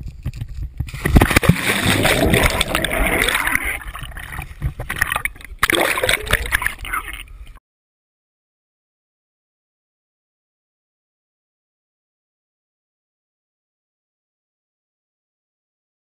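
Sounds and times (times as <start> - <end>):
water splashing and churning: 0.9 - 7.6.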